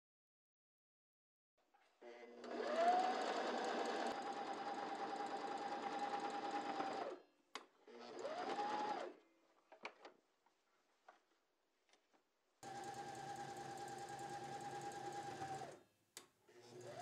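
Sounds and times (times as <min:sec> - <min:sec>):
sewing machine stitching: 0:02.2 - 0:07.2, 0:07.9 - 0:09.2, 0:12.6 - 0:15.8, 0:16.6 - 0:17.0.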